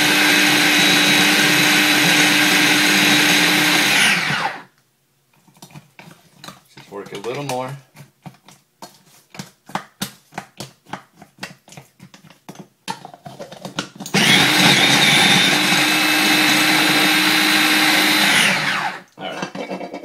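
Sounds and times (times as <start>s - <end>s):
food processor grinding: 0.0s - 4.7s, 13.6s - 20.0s
spoon scraping dough in plastic bowl: 5.3s - 14.7s.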